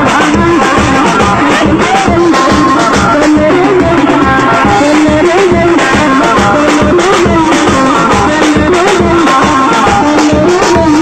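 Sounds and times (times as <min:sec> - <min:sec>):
dance music: 0:00.0 - 0:11.0
drums beating fast rhythm: 0:00.0 - 0:11.0.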